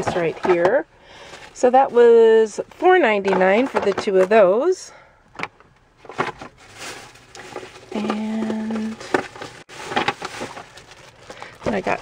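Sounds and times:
plastic cases clicking and knocking: 3.1s - 4.4s, 5.3s - 6.5s, 8.0s - 10.6s.

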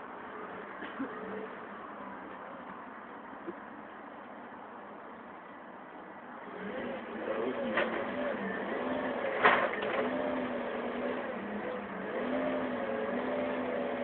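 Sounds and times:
forklift engine running: 6.5s - 14.0s.

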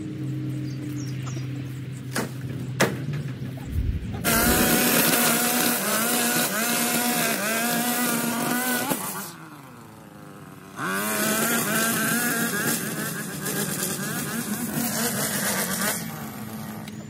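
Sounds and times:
string trimmer engine cutting grass: 3.7s - 17.0s.

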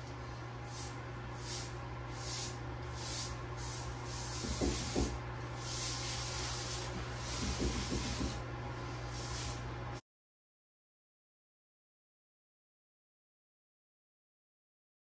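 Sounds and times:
rag rubbing on metal pipe: 4.2s - 8.4s.

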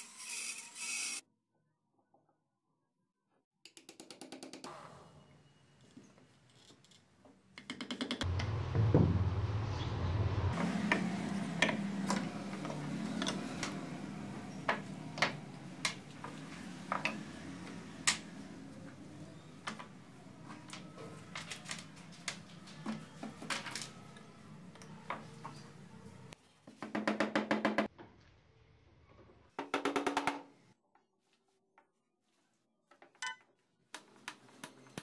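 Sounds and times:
low hum: 8.3s - 19.4s.

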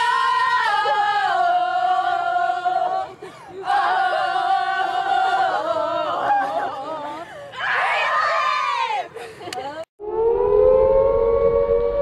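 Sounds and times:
young women chanting in unison: 0.0s - 7.3s.

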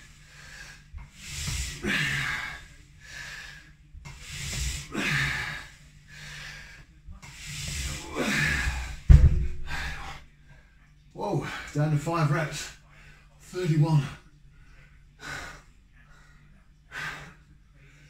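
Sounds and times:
hard breathing: 0.0s - 10.3s, 12.8s - 18.0s
low thump: 9.0s - 10.1s.

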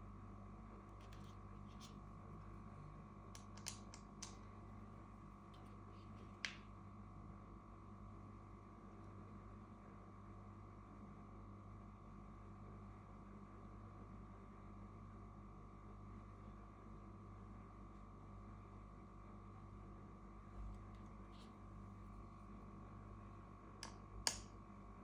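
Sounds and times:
faint room hum: 0.0s - 25.0s
small sharp clicks: 3.4s - 4.5s, 23.8s - 24.5s.

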